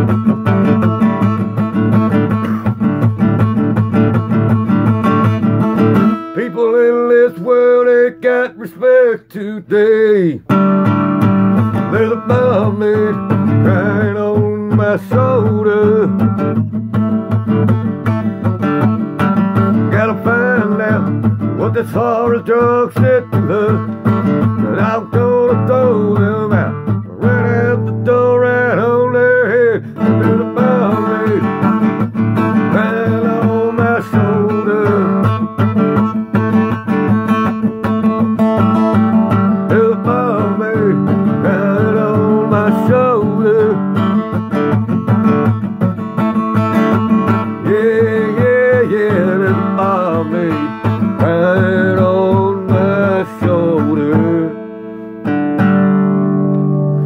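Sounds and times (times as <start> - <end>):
strummed acoustic guitar: 0.0 - 57.0
man singing: 6.2 - 10.6, 11.6 - 16.4, 19.2 - 36.8, 37.5 - 44.5, 46.4 - 54.9.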